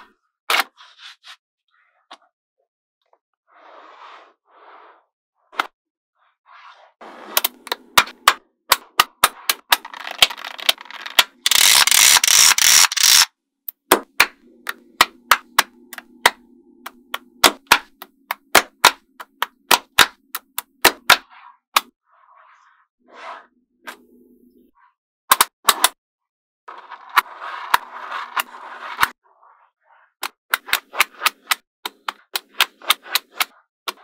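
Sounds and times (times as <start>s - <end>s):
magnetic balls clicking together: 9.2s - 14.0s.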